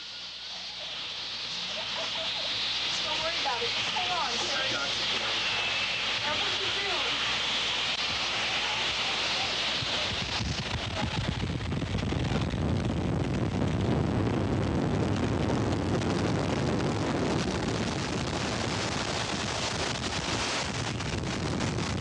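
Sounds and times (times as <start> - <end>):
strong wind buffeting microphone: 9.8 - 22.0.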